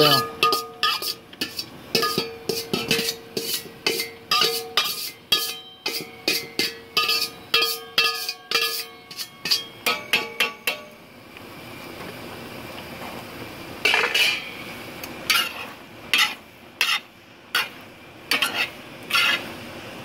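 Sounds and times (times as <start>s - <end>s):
steady hiss: 0.0s - 20.0s
spoon knocking on metal bowl: 2.0s - 3.1s, 9.5s - 10.9s.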